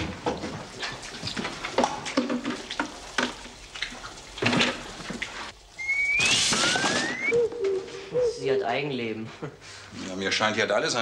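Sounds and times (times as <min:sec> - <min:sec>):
pans and buckets clattering: 0:00.0 - 0:05.3
water splashing: 0:00.0 - 0:07.3.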